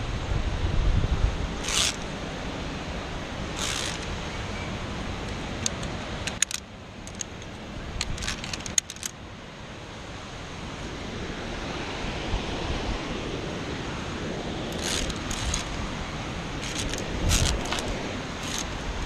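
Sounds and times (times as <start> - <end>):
wind rumble on microphone: 0.0 - 6.4, 10.4 - 19.0
carabiners scraping along cable: 1.6 - 2.2, 3.4 - 9.2, 14.7 - 15.8, 16.6 - 19.0
metallic clicks and clinks: 3.6 - 4.1, 5.3 - 9.1, 14.8 - 15.7, 16.6 - 18.7.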